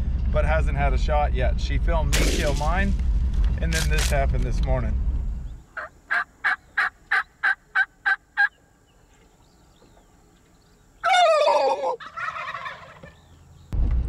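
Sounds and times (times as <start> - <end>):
turkey gobble: 5.7 - 8.6, 11.0 - 13.4
turkey short calls: 5.7 - 8.6, 11.0 - 13.2.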